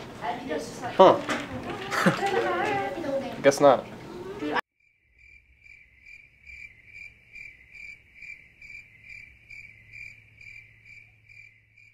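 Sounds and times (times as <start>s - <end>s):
cricket chirping: 4.8s - 11.9s.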